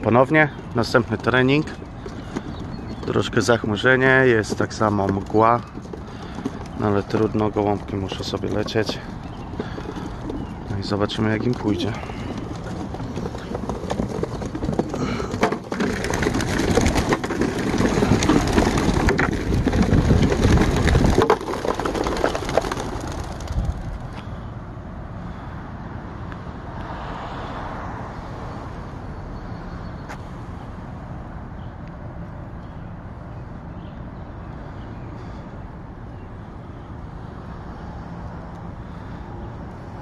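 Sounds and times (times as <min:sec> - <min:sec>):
pigeons wings flapping: 0:00.0 - 0:24.2.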